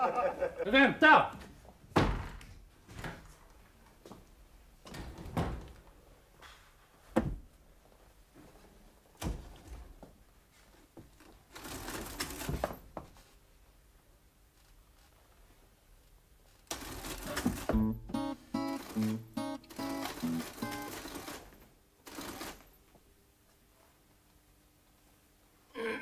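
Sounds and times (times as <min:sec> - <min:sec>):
knocks and thuds of handling: 0:01.9 - 0:03.3, 0:07.0 - 0:07.6.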